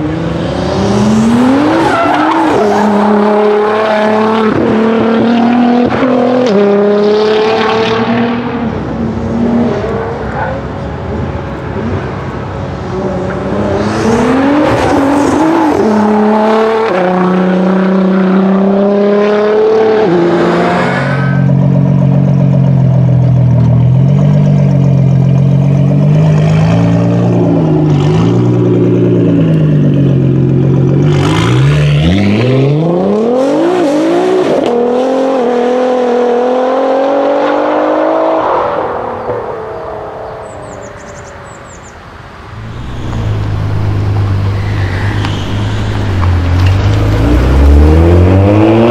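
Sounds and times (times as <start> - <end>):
car engine accelerating hard: 0.0 - 41.8, 42.4 - 48.9.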